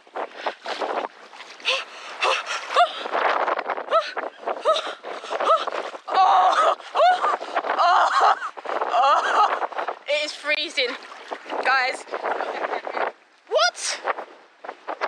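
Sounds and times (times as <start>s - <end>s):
woman gasping and exclaiming: 1.7s - 3.1s, 3.9s - 8.1s, 13.5s - 14.0s.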